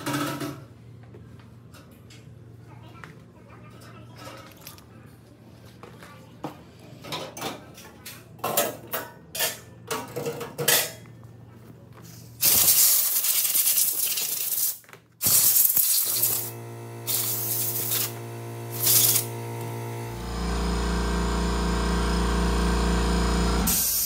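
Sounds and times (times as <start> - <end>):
compressed air blasts: 12.4 - 16.5, 17.1 - 19.3, 23.7 - 24.0
steady low hum: 16.1 - 24.0.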